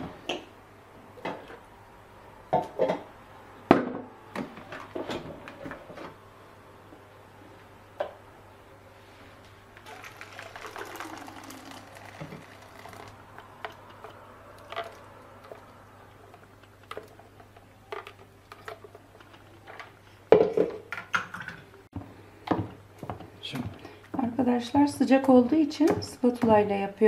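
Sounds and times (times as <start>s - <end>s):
thick puree pouring: 9.8s - 17.2s.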